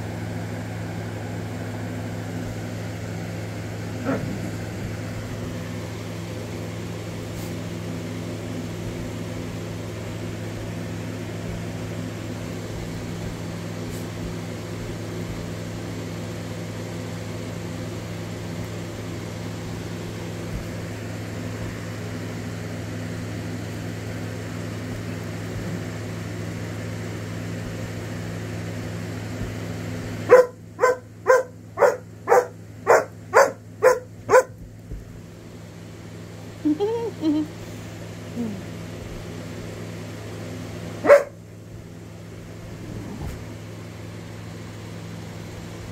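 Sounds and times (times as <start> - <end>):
air conditioner humming: 0.0 - 45.9
dog barking: 4.0 - 4.4, 30.3 - 34.6, 41.0 - 41.4.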